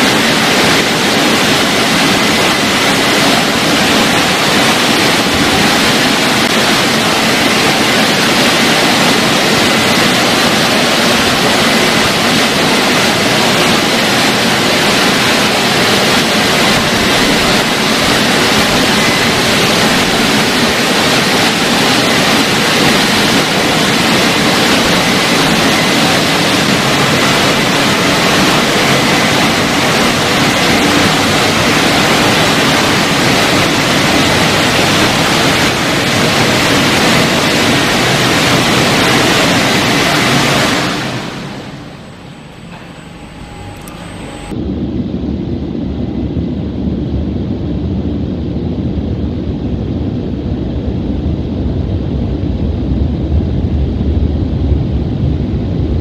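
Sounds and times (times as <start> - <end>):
car wash blowers rushing air: 0.0 - 56.0
faint high whine: 0.0 - 56.0.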